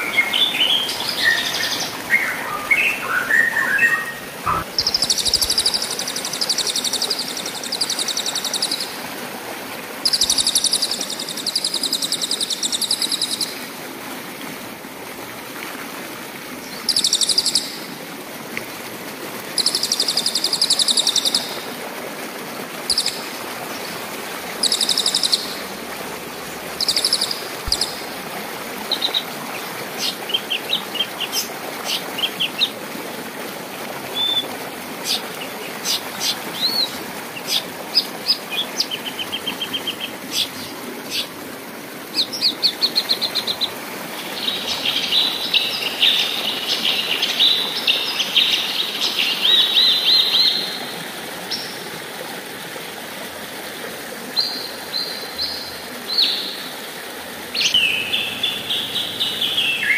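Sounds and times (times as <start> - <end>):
stream rushing: 0.0 - 59.9
songbirds chirping and trilling: 0.1 - 5.4, 57.6 - 59.9.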